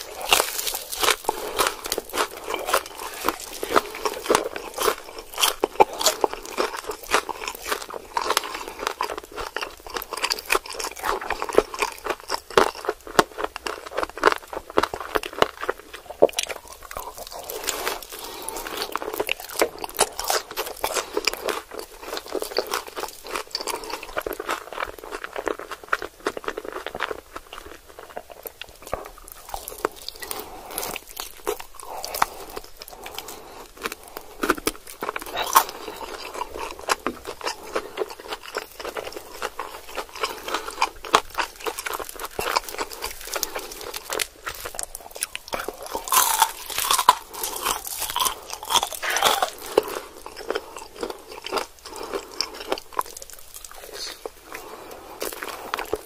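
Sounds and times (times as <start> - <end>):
crunching and chewing chicken: 0.0 - 56.0.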